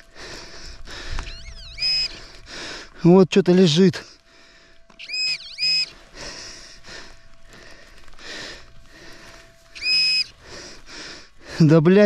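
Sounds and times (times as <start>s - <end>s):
faint steady tone: 0.0s - 12.0s
metal detector beeps: 1.2s - 2.3s, 4.7s - 6.6s, 9.0s - 10.7s.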